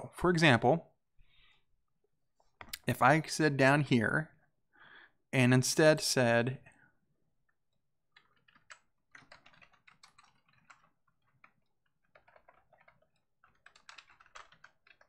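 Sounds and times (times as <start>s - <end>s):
faint keyboard typing: 8.1s - 15.0s.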